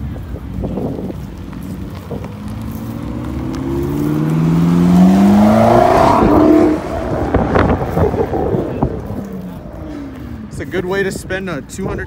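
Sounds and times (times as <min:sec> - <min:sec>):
sports car engine accelerating: 0:01.4 - 0:11.0.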